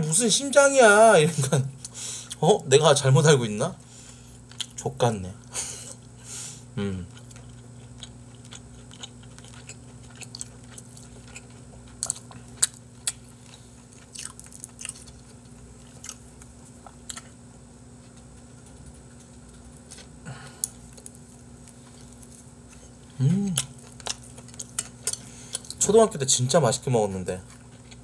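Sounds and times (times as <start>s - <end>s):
low steady hum: 0.0s - 28.0s
chewing and biting food: 4.4s - 4.8s, 7.1s - 17.4s, 18.0s - 25.8s, 27.4s - 28.0s.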